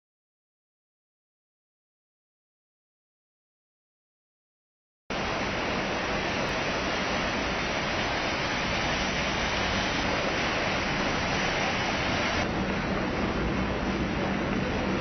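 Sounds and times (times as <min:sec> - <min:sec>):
heavy rain pouring: 0:05.1 - 0:15.0.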